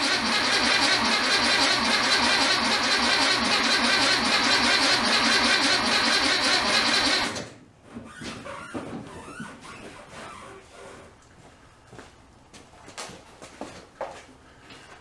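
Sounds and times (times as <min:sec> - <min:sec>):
starter motor cranking engine: 0:00.0 - 0:07.5.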